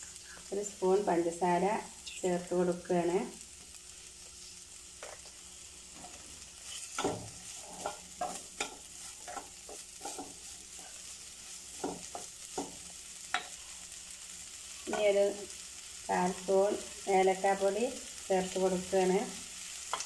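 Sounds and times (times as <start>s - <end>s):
faint sizzle from pan: 0.0s - 20.0s
spatula scraping a pan: 5.9s - 13.9s.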